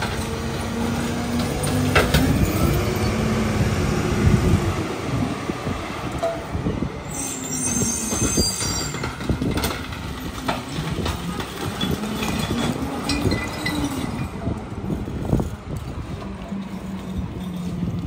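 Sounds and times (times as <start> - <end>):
clanking and rattling: 0.0 - 3.2, 8.1 - 15.5
high metallic squeal: 7.0 - 9.2, 11.7 - 14.3.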